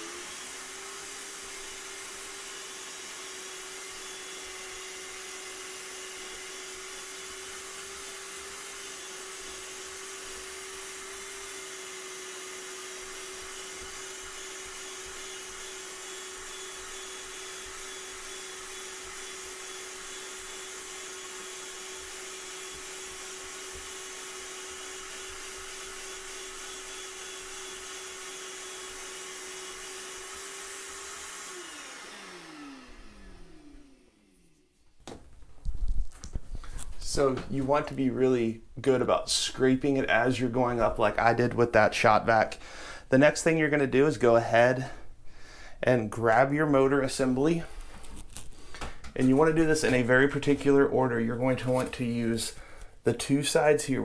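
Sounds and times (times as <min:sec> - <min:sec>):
shop vac running: 0:00.0 - 0:35.2, 0:36.2 - 0:54.0.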